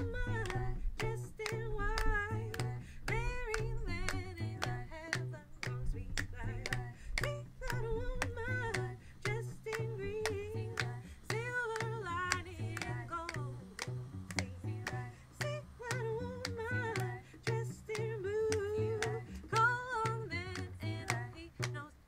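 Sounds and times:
low bass line: 0.0s - 22.0s
women singing folk song: 0.0s - 22.0s.

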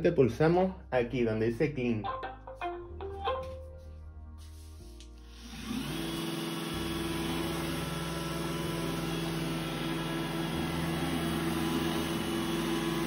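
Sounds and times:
vacuum suction whir: 5.2s - 13.0s
robot vacuum motor hum: 5.3s - 13.0s.

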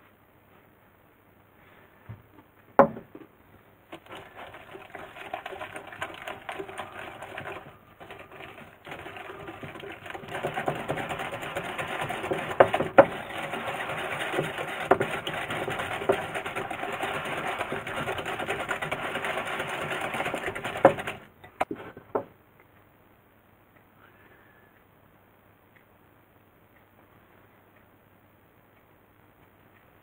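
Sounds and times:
whisk clattering in glass bowl: 3.9s - 21.7s
whisk knocks on bowl: 9.6s - 21.2s.

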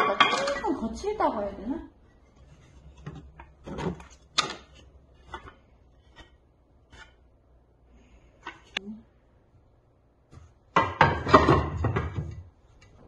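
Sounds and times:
wooden boards knocking together: 10.7s - 12.4s.

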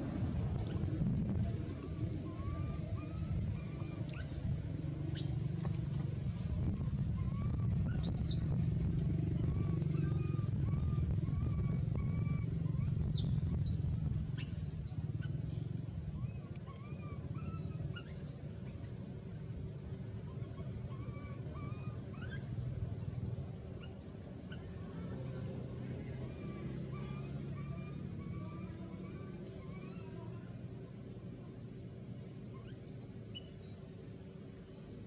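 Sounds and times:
steady low rumble: 0.0s - 26.5s
monkey squeals: 1.7s - 4.4s, 6.7s - 8.5s, 9.3s - 15.4s, 16.1s - 18.8s, 20.3s - 22.7s, 23.8s - 25.0s, 26.1s - 30.4s, 32.5s - 33.6s.

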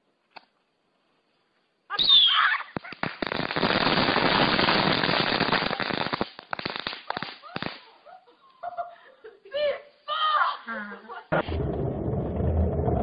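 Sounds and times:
crackling bangs and pops: 2.7s - 7.8s.

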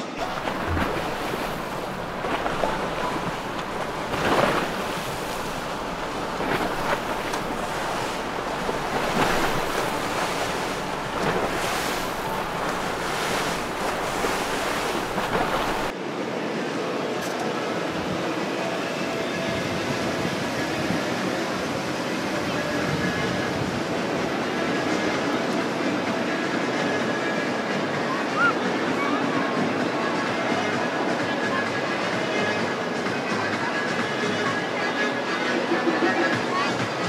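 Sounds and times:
wind buffeting microphone: 0.0s - 15.9s
waves rushing: 0.0s - 37.0s.

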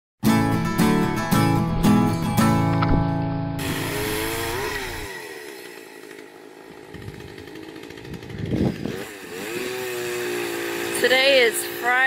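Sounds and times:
chainsaw engine revving: 3.6s - 12.0s.

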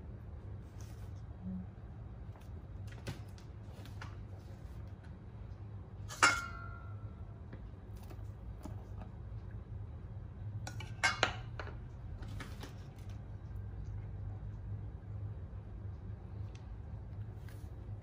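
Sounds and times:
low hum: 0.0s - 18.0s
utensils and dishes clinking: 6.0s - 7.0s, 10.7s - 11.8s.

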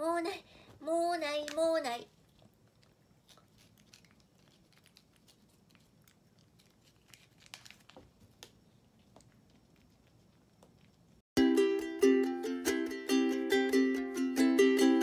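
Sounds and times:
kitten licking and chewing: 2.1s - 11.2s.

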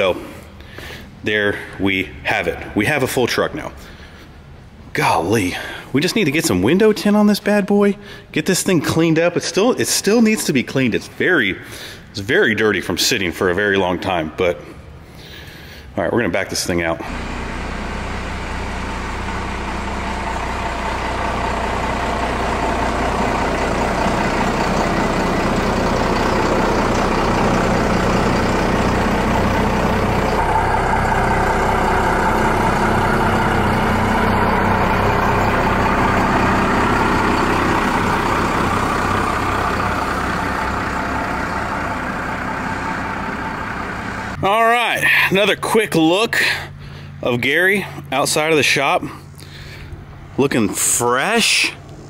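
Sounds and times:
pickup truck engine running: 17.0s - 50.4s.

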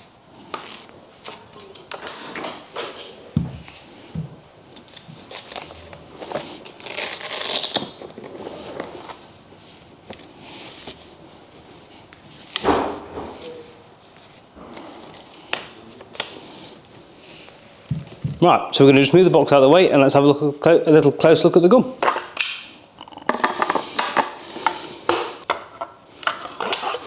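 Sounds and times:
fabric rustling and sliding: 8.2s - 18.4s.

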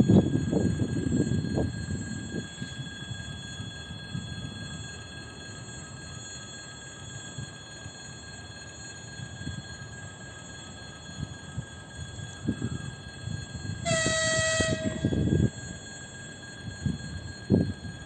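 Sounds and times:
electric train horn blast: 13.8s - 15.5s.

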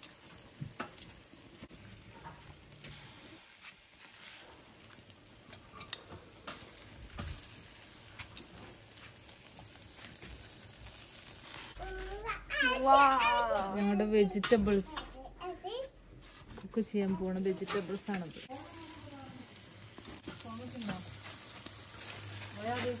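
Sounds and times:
crackles and pops: 0.0s - 11.8s
meat sizzling on grill: 0.0s - 15.1s, 16.7s - 23.0s
metal tongs clicking on grate: 5.5s - 6.7s.

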